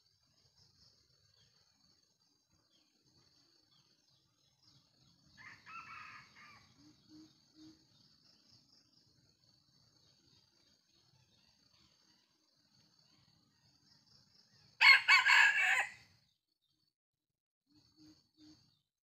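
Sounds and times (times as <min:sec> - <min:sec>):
rooster crowing: 0:05.4 - 0:06.7, 0:14.8 - 0:16.1.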